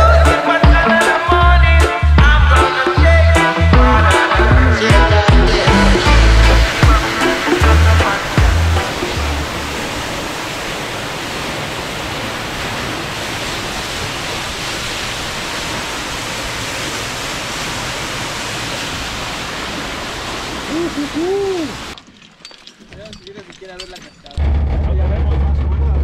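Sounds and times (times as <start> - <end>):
waterfall pouring into pool: 4.8 - 22.6
person speaking: 20.6 - 21.9.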